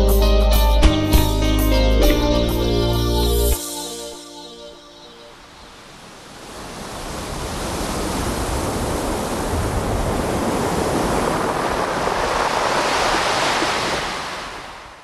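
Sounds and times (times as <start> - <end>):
waves breaking: 5.2 - 15.0.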